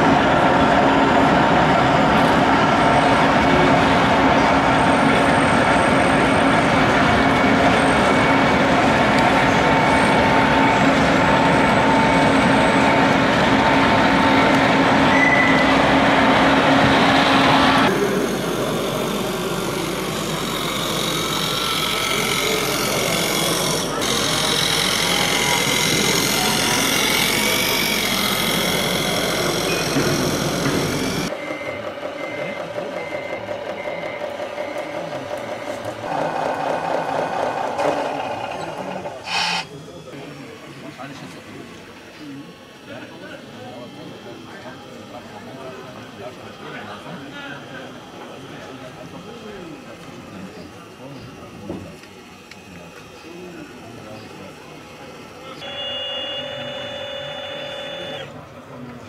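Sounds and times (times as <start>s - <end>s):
model dozer mechanical hum: 0.1s - 59.0s
model machine running: 2.6s - 59.0s
voices in background: 31.3s - 36.6s, 37.4s - 59.0s
held tones: 55.6s - 58.3s.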